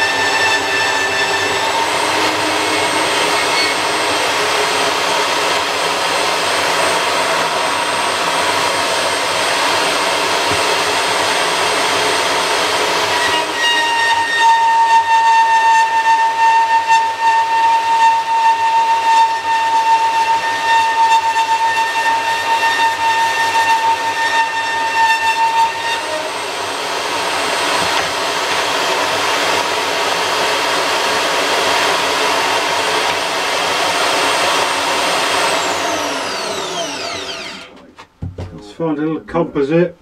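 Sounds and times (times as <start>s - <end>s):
bandsaw cutting with high whine: 0.0s - 37.9s
saw winding down: 0.0s - 37.9s.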